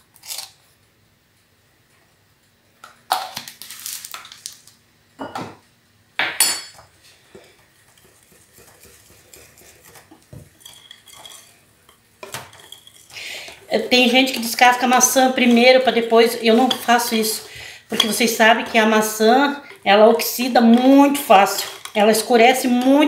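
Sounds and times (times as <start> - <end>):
whisk beating batter: 7.7 - 11.5
spoon clinking in glass bowl: 10.6 - 11.5.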